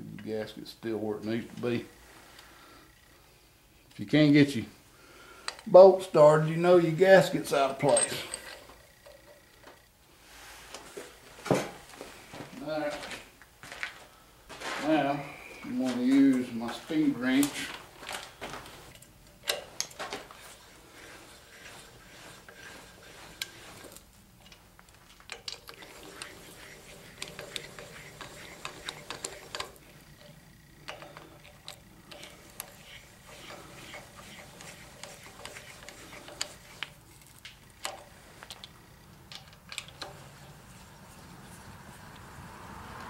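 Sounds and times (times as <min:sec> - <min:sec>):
speed wrench clicking: 0:25.3 - 0:37.0.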